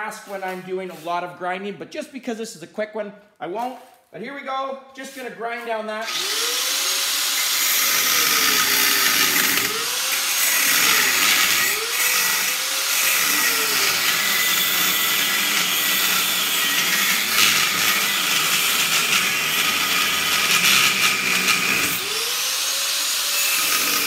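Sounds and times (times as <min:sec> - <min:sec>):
grinder grinding steel: 0:06.0 - 0:24.0.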